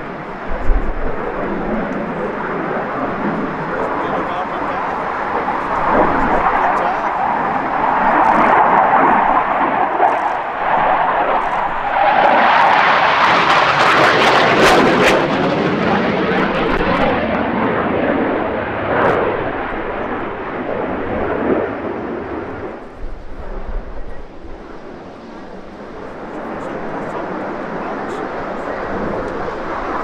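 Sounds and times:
jet roar passing overhead: 0:00.0 - 0:30.0.

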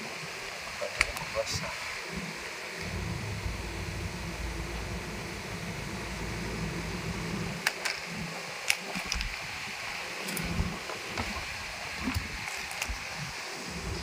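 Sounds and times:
steady background hiss: 0:00.0 - 0:14.0
plastic parts clicking and tapping: 0:07.6 - 0:09.4.

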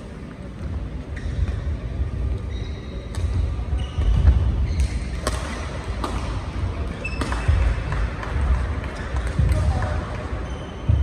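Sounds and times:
shoes squeaking on court: 0:01.1 - 0:06.0, 0:06.8 - 0:07.8, 0:08.8 - 0:11.0
rackets striking shuttlecock: 0:03.0 - 0:10.2.

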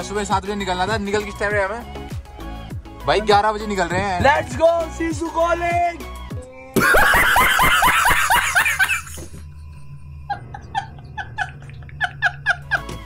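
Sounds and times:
man laughing: 0:06.8 - 0:09.4, 0:10.3 - 0:13.0.

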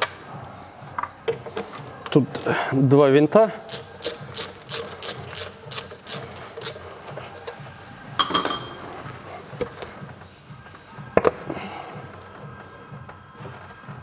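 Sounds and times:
hand ratchet clicking: 0:03.7 - 0:07.5.

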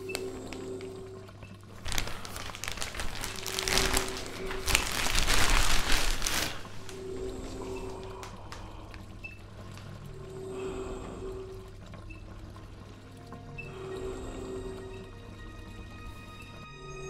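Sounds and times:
low music drone: 0:00.0 - 0:17.0
plastic sheeting crinkling: 0:01.8 - 0:09.0.

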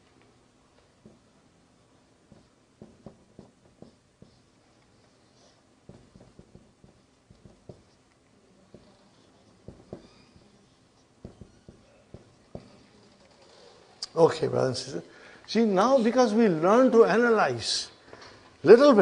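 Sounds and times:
marker writing on whiteboard: 0:02.2 - 0:13.8.

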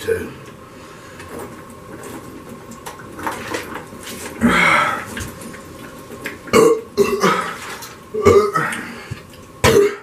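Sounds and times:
person gulping drink: 0:03.2 - 0:10.0.

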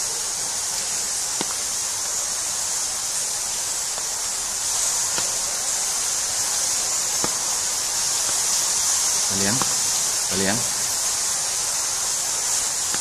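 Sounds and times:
high-pitched hiss: 0:00.0 - 0:13.0.

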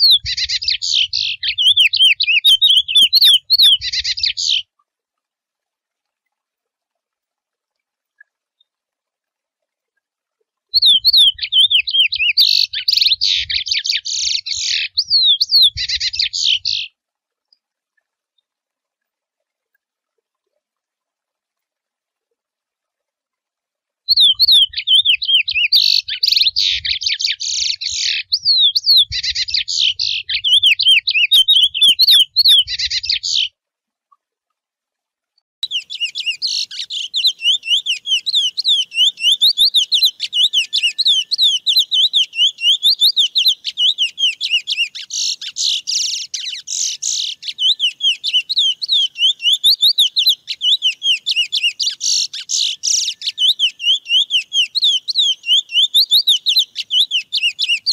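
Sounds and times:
finch singing: 0:00.0 - 0:04.6, 0:10.8 - 0:16.9, 0:24.1 - 0:33.5, 0:35.6 - 0:57.9.

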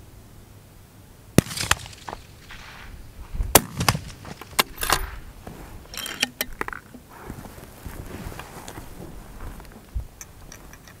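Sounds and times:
rifle shot: 0:01.4 - 0:05.2
sharp clicks and knocks: 0:10.2 - 0:11.0.

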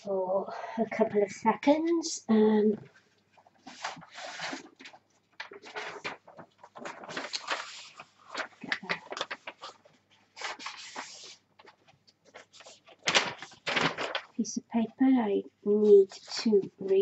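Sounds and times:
paper rustling: 0:02.7 - 0:14.6, 0:15.7 - 0:17.0.

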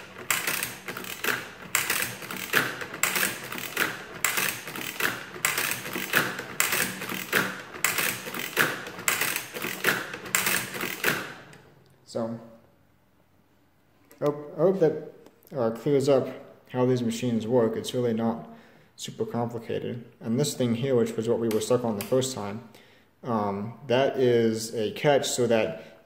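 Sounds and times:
adding machine clattering: 0:00.0 - 0:11.5.

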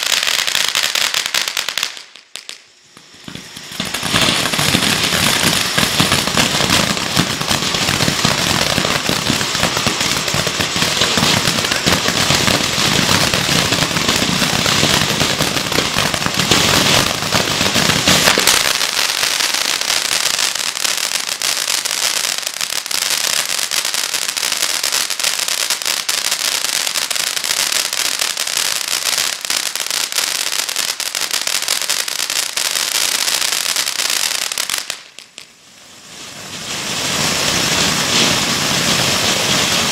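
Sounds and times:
firework crackling: 0:00.0 - 0:39.9
firework fountain hissing: 0:00.0 - 0:39.9.

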